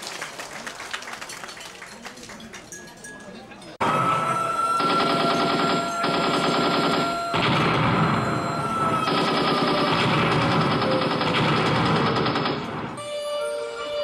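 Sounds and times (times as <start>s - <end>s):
high whistle sliding down: 3.8s - 9.9s
machine-gun fire: 4.8s - 13.0s.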